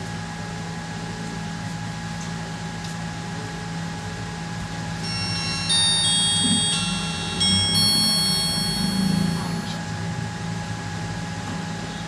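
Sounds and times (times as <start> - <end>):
steady hum: 0.0 - 12.0
phone power-on chime tune: 5.0 - 9.9.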